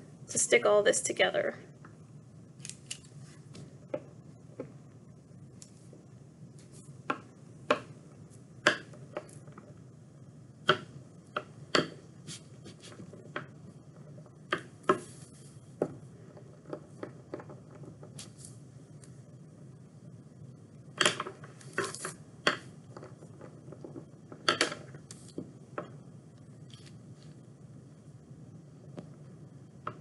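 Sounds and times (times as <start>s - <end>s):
low steady hum: 0.0s - 30.0s
roller clicks and taps: 15.8s - 18.2s, 21.0s - 26.0s.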